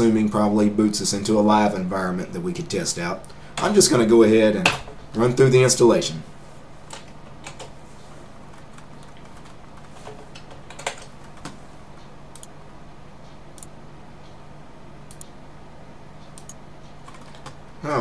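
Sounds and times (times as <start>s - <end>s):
computer keyboard clicks: 12.3s - 12.5s, 15.1s - 15.4s, 16.2s - 17.6s.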